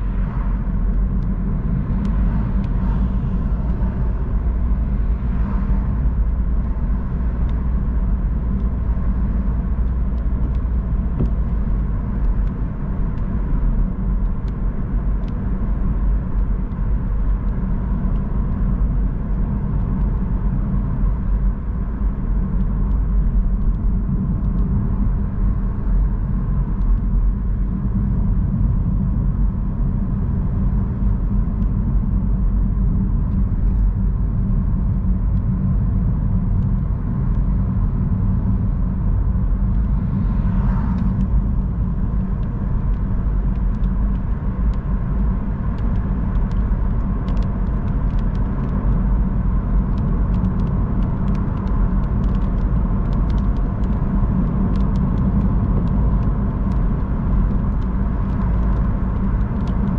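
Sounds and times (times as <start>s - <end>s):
car driving on wet road: 0.0s - 29.0s, 32.2s - 59.9s
faint ticks: 45.7s - 49.0s, 49.8s - 59.9s.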